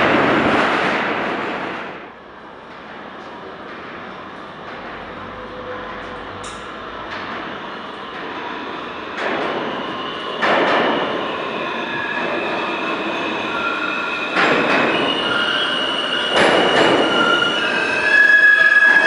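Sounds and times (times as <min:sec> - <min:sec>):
subway train arriving: 0:00.0 - 0:19.0
train wheel clacks: 0:14.3 - 0:15.4, 0:16.3 - 0:17.4.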